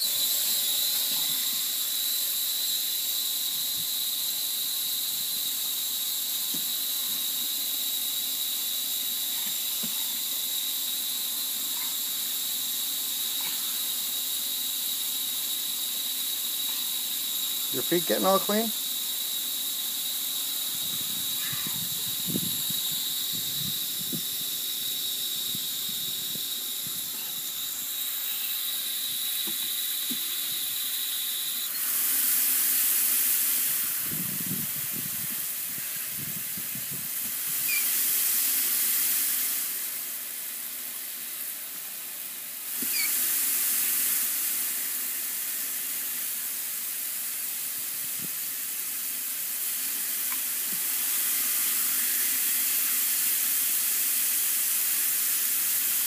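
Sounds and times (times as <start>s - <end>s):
high thin whistle: 0.0s - 5.8s, 37.6s - 37.9s, 42.8s - 43.2s
water spraying from nozzle: 0.0s - 56.0s.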